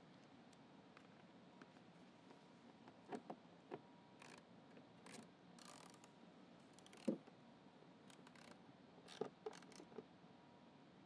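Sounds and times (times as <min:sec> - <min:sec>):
ratchet wrench clicking: 0:05.6 - 0:06.1, 0:08.1 - 0:09.8.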